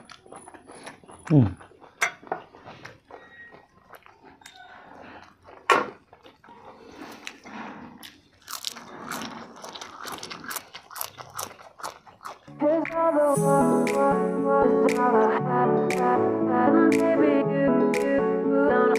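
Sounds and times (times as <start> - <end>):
people biting and chewing: 0.0 - 13.2.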